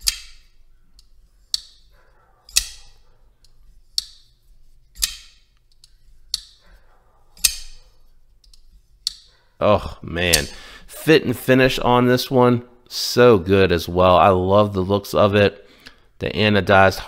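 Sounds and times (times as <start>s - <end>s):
folding knife blade clicking: 0.0s - 1.9s, 2.5s - 4.3s, 4.9s - 6.6s, 7.4s - 9.3s.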